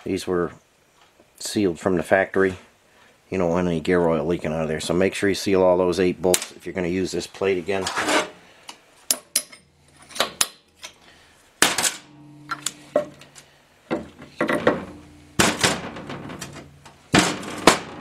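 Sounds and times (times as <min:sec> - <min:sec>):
metal knocks and clinks: 0:11.8 - 0:18.0.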